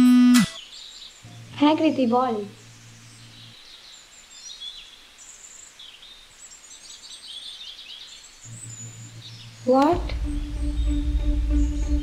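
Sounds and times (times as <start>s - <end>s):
small birds chirping: 0.5s - 12.0s.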